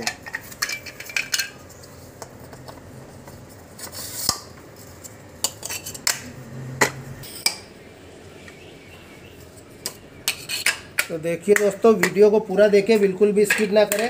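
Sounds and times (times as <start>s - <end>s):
pump parts clicking and knocking: 0.0s - 3.4s.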